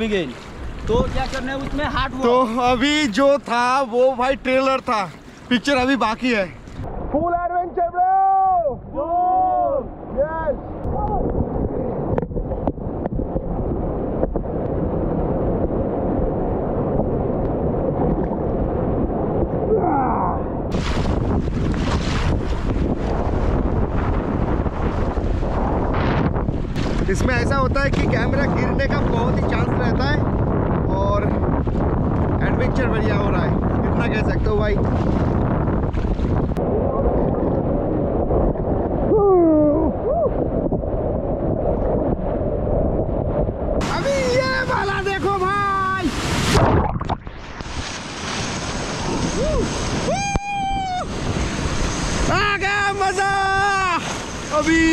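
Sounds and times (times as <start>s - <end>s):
wind and spray on microphone: 0.0s - 7.2s, 20.7s - 54.9s
person whooping: 19.7s - 20.5s, 39.1s - 40.4s, 49.4s - 51.2s
whitewater rapids rumbling: 43.8s - 54.9s.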